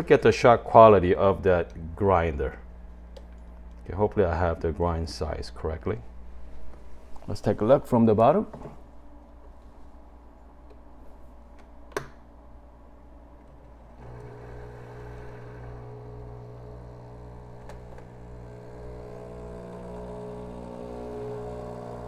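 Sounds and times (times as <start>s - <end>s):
espresso machine pump humming: 14.0s - 22.0s.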